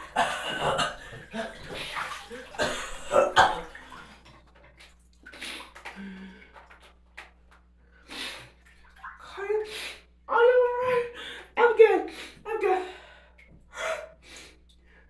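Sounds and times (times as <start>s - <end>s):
water splashing and sloshing: 0.0s - 9.7s.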